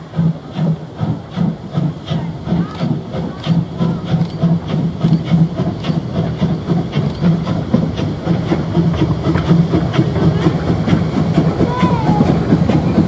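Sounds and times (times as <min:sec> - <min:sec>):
steam hissing: 0:00.0 - 0:13.0
steam locomotive chuffing: 0:00.0 - 0:13.0.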